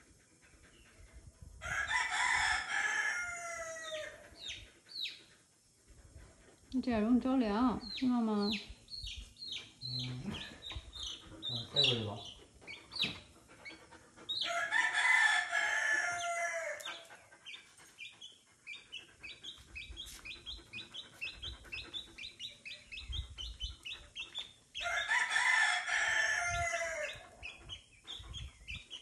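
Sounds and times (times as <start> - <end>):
rooster crowing: 1.6 - 4.2, 14.4 - 17.0, 24.8 - 27.3
chick peeping: 7.8 - 14.5, 27.0 - 29.0.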